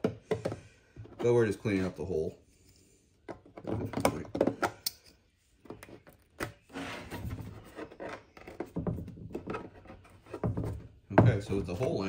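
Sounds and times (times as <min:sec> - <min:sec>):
knife scraping plastic: 0:05.7 - 0:10.5.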